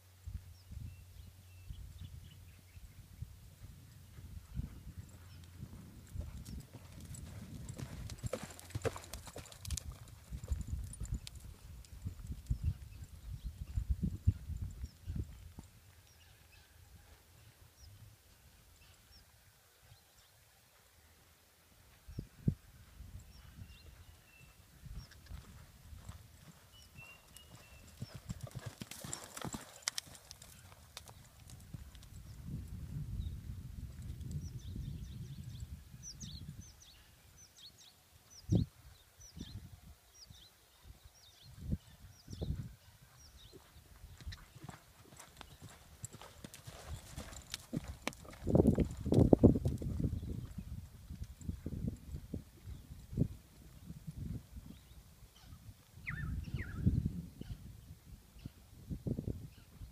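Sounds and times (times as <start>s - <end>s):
horse hoofbeats cantering on sand: 3.5s - 13.8s, 23.3s - 32.5s, 42.1s - 52.8s.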